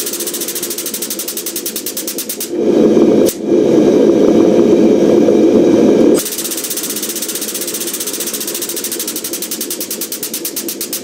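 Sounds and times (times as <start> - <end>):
air pump pulsing: 0.0 - 3.6, 5.8 - 11.0.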